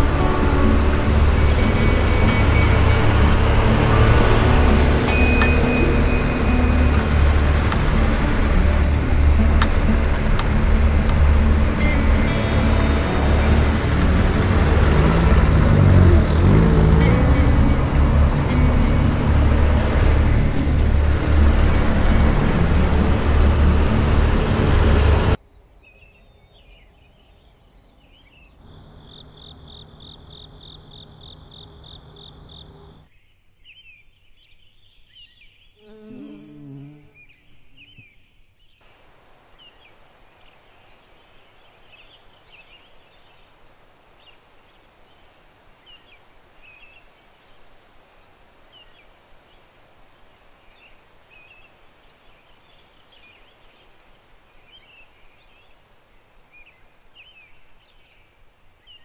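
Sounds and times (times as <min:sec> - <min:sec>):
vehicle engine and road noise: 0:00.0 - 0:25.4, 0:28.6 - 0:33.1
faint bird chirps: 0:25.5 - 0:38.5.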